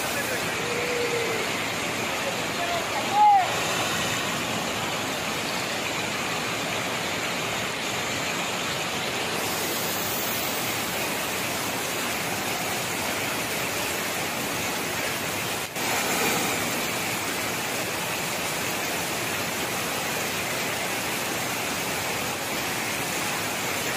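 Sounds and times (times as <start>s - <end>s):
heavy rain: 0.0s - 23.9s
water pouring over a bank: 0.0s - 23.9s.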